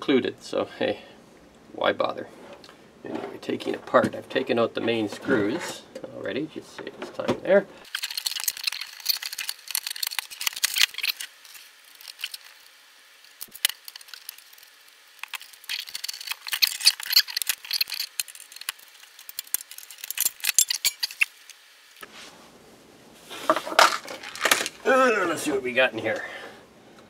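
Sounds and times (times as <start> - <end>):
metal clicks rattles and scrapes: 6.8 - 12.6, 15.2 - 21.3.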